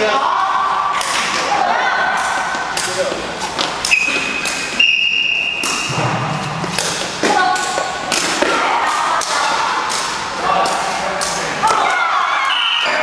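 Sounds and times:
voices shouting: 11.6 - 13.0.

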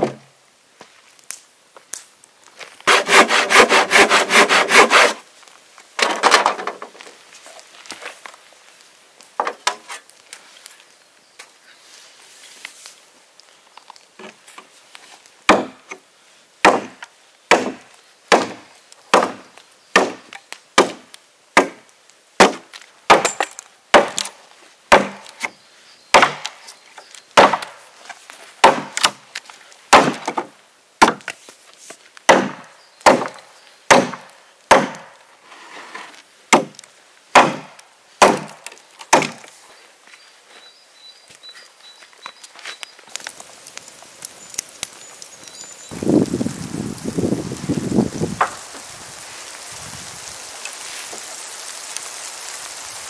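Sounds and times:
axe chopping wood: 15.5 - 16.0, 16.6 - 24.3, 24.9 - 25.4, 26.1 - 26.6, 27.4 - 27.8, 28.6 - 29.2, 29.9 - 31.3, 32.3 - 35.1, 36.5 - 39.4.

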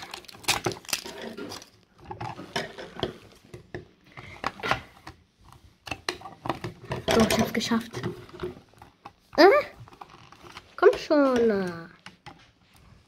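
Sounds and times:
plastic wrapper crinkling: 0.0 - 3.4.

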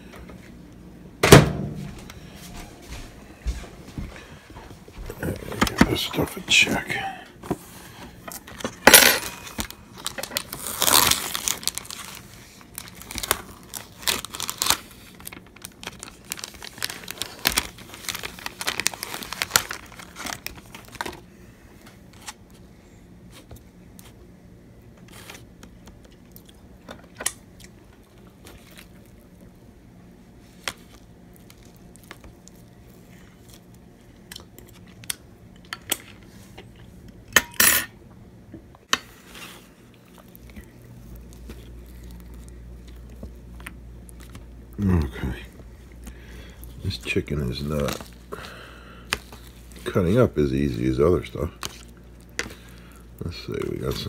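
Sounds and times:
plastic film crinkling and tearing: 8.4 - 21.3, 30.4 - 35.2, 39.1 - 54.0
loud plastic rips: 9.2 - 21.2.

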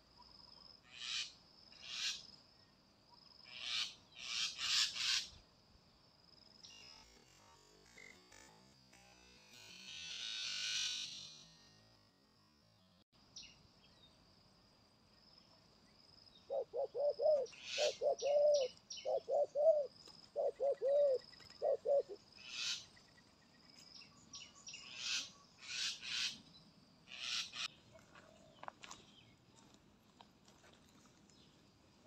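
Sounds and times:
birds chirping: 16.3 - 29.4
dove cooing: 16.5 - 22.2.

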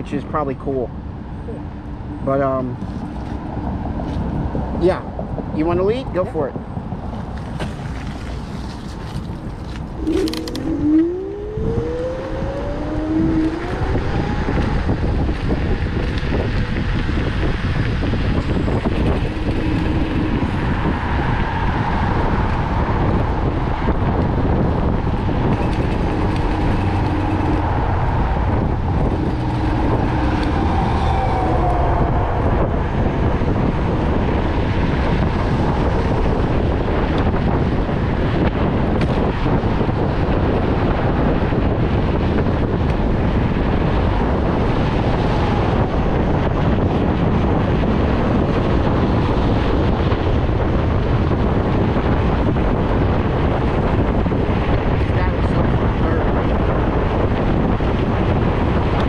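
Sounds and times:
wind rushing on microphone: 0.0 - 59.0
electric scooter motor whine: 9.8 - 37.3.

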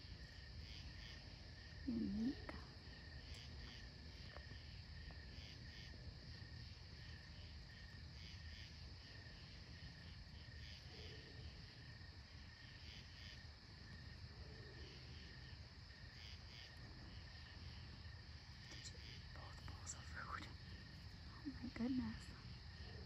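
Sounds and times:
insect chirps: 0.0 - 23.0
insects trilling: 0.0 - 23.0.

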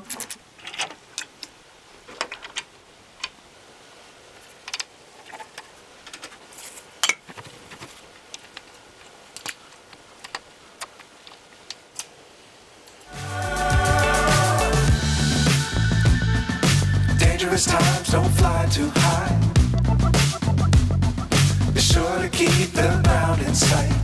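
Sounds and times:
music: 13.1 - 24.0.

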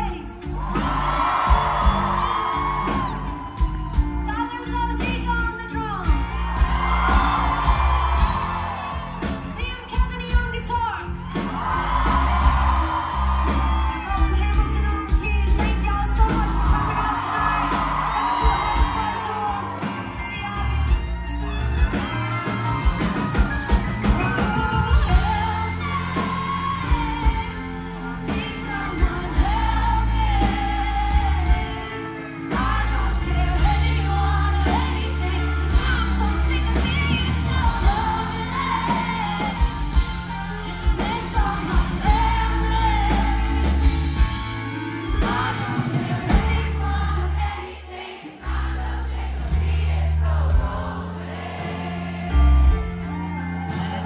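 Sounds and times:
band bass and drums: 0.0 - 54.0
woman singing: 13.5 - 21.2, 24.2 - 48.7.

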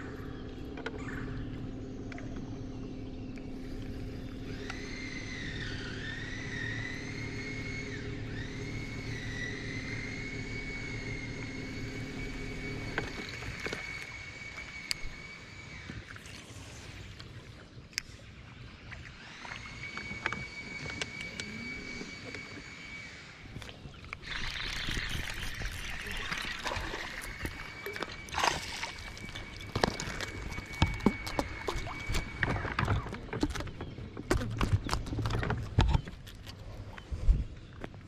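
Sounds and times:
steady high whine: 0.0 - 38.0
fish splashing and thrashing: 12.5 - 18.1, 23.5 - 37.9
knocks and thumps on boat: 29.7 - 36.3.

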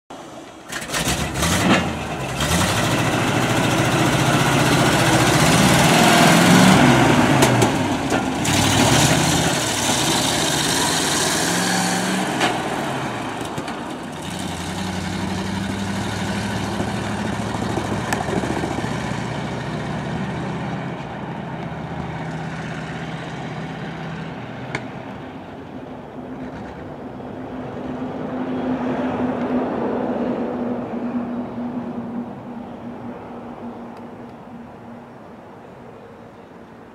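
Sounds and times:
truck engine accelerating: 0.1 - 25.7.

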